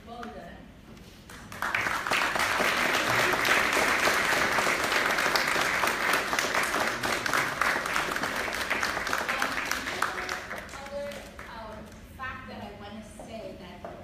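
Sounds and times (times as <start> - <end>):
audience applauding: 1.3 - 11.2.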